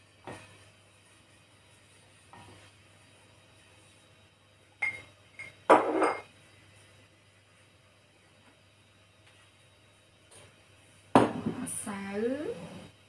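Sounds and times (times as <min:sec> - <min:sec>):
drinking glass clinking: 0:04.8 - 0:06.3.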